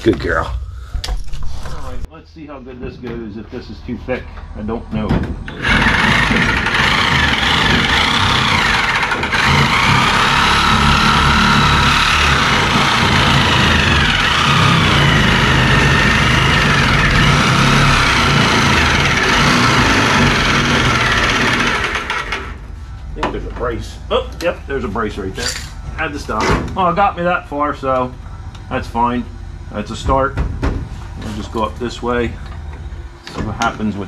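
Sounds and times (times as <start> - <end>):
electric metal shear cutting steel: 5.5 - 22.6.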